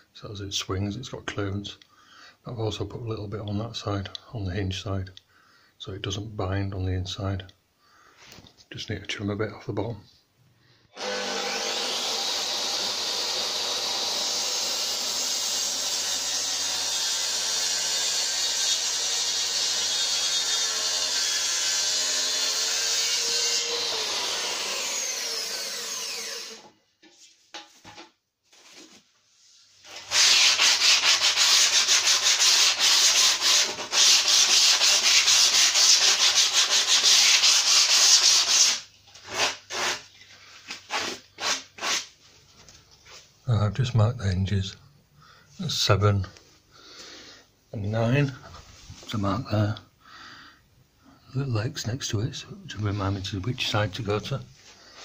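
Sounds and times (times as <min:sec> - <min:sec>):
circular saw cutting wood: 0:11.0 - 0:26.7
sanding block rubbing wood: 0:30.0 - 0:40.0.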